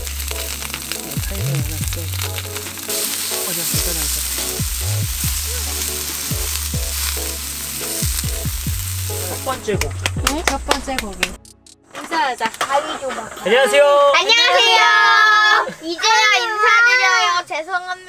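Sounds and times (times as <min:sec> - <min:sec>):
meat and mushrooms sizzling: 0:00.0 - 0:10.3
background music: 0:00.0 - 0:12.4.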